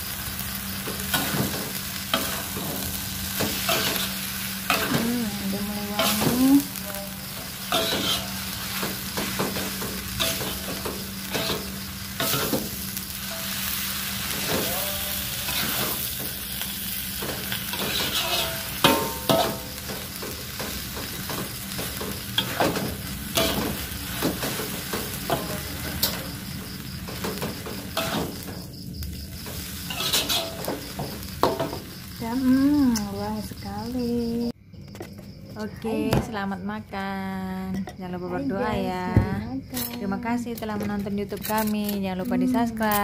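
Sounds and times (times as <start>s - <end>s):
noodles sizzling in a wok: 0.0s - 34.6s
metal spatula scraping: 2.1s - 5.0s, 7.7s - 12.6s, 17.4s - 19.7s, 29.4s - 30.8s
spatula clanking against wok: 7.7s - 13.4s, 17.2s - 26.3s, 29.5s - 31.9s.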